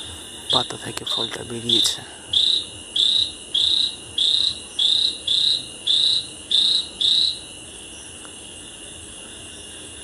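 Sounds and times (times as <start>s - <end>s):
high insect-like trill: 0.0s - 10.0s.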